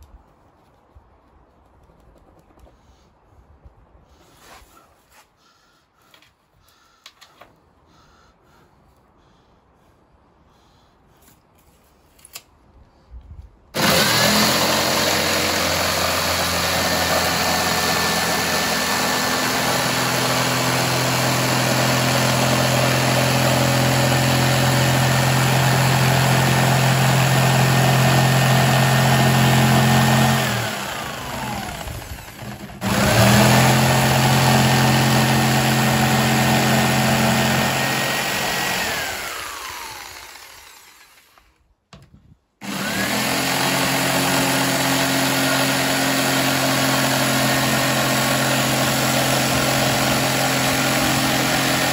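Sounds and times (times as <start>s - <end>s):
electric jigsaw cutting board: 13.8s - 41.6s, 42.6s - 51.9s.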